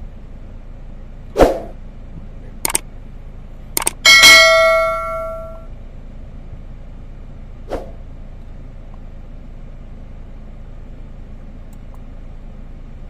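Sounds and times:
whoosh: 1.4s - 1.7s
bell ding: 4.1s - 5.7s.

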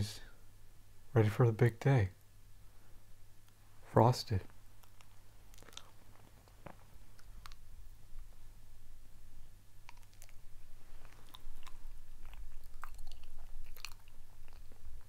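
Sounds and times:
person chewing banana: 4.7s - 7.7s, 9.8s - 15.0s.

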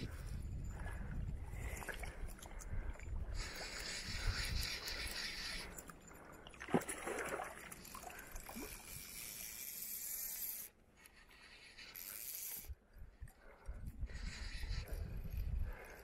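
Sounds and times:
wind rumble on microphone: 0.0s - 5.7s, 13.0s - 16.0s
fly reel clicking: 2.6s - 6.4s, 7.6s - 12.8s, 13.4s - 16.0s.

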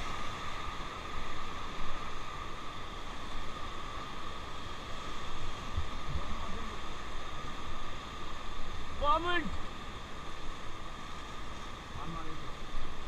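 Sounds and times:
whitewater rushing: 0.0s - 13.0s.

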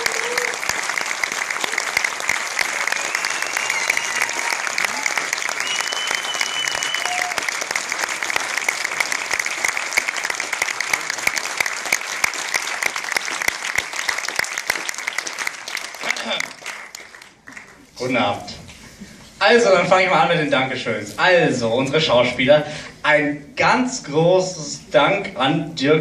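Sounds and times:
audience applauding: 0.0s - 17.9s.

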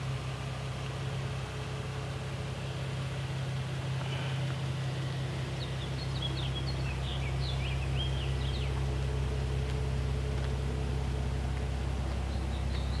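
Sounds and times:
car engine idling: 0.0s - 13.0s
bird chirping: 5.0s - 9.1s, 12.0s - 13.0s.

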